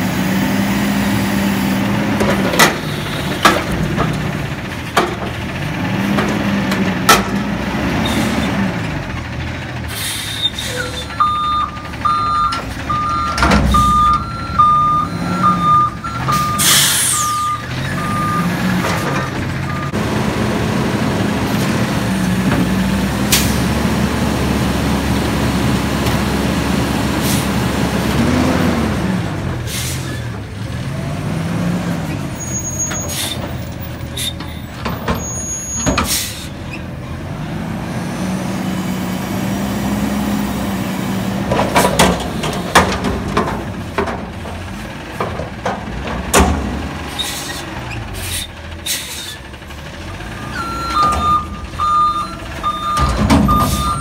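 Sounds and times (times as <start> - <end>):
garbage truck engine revving: 0.0 - 54.0
air brake hiss: 9.9 - 10.8, 16.6 - 17.3, 48.2 - 49.4
reversing beeps: 10.8 - 18.5, 19.2 - 20.0, 50.5 - 54.0.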